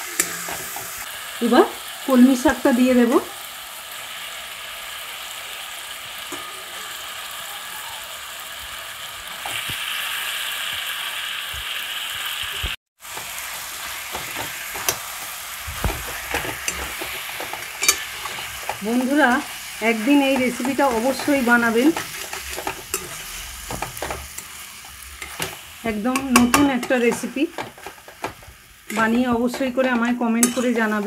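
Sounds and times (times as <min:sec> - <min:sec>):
greens sizzling in hot oil: 0:00.0 - 0:31.0
spatula scraping metal pan: 0:14.0 - 0:31.0.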